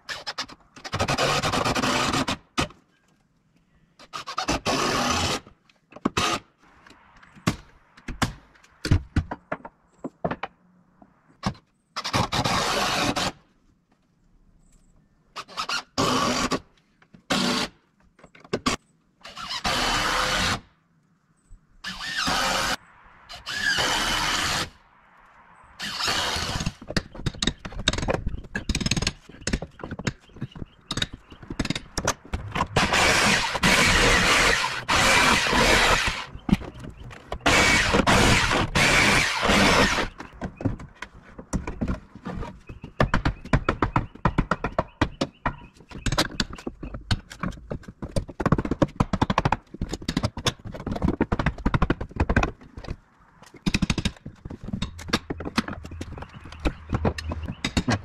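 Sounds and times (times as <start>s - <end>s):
nails squealing and scraping: 0.0s - 2.8s, 4.0s - 8.4s, 11.4s - 13.5s, 15.3s - 20.7s, 21.8s - 24.8s, 25.8s - 58.0s
sharp knocks and clicks: 26.6s - 34.0s, 40.1s - 58.0s.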